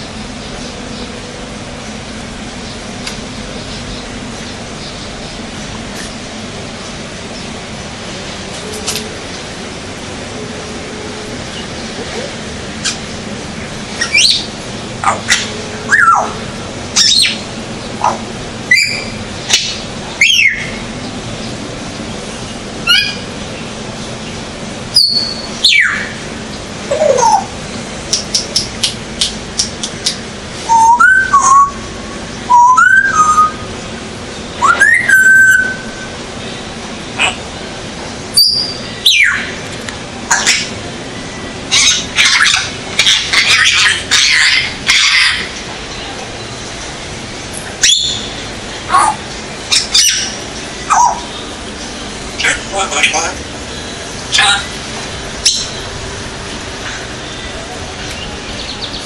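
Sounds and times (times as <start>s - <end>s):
parrot squawks: 14.0s - 16.4s, 22.8s - 23.2s, 41.7s - 45.6s, 47.8s - 48.3s, 48.9s - 51.3s
parrot whistled calls: 14.0s - 16.4s, 17.0s - 17.4s, 18.0s - 20.8s, 22.8s - 23.3s, 25.0s - 26.2s, 26.9s - 27.5s, 30.6s - 31.9s, 32.5s - 33.6s, 34.6s - 36.1s, 38.3s - 39.5s, 41.7s - 45.5s, 47.8s - 48.3s, 48.9s - 51.3s.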